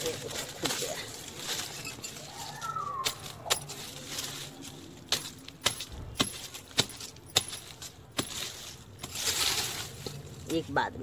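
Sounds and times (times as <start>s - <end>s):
metal blade chopping stony soil: 3.0s - 10.6s.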